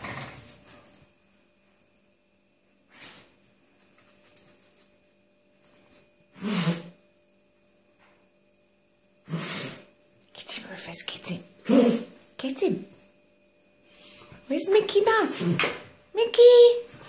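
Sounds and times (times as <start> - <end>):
dog blowing breaths through nose: 6.3 - 7.0, 9.2 - 10.0.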